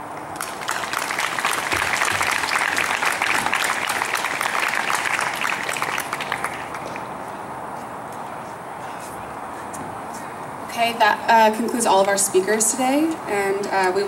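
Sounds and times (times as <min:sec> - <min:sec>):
audience applauding: 0:00.3 - 0:07.3.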